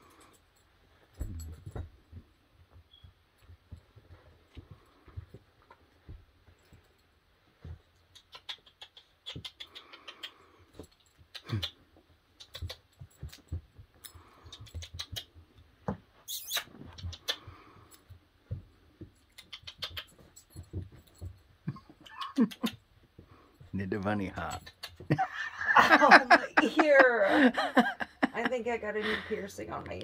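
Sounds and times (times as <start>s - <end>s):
small clicks and scuffles: 0.3s - 23.7s
puppy sniffing and licking: 8.0s - 10.6s.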